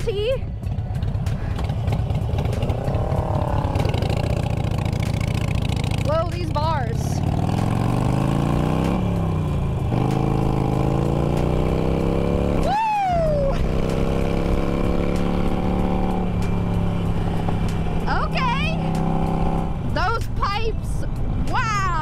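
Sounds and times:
motorcycle engine accelerating: 0:00.0 - 0:20.2
rider shouting woo: 0:02.9 - 0:04.3, 0:12.6 - 0:13.6.

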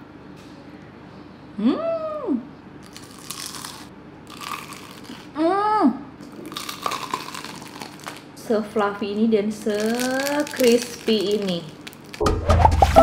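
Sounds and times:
crunchy bites into fried food: 0:02.8 - 0:05.3, 0:06.2 - 0:08.3, 0:09.6 - 0:12.2.

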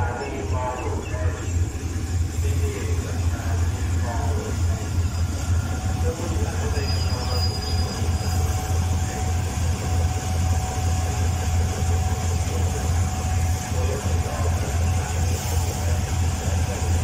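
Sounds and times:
locomotive engine idling: 0:00.0 - 0:17.0.

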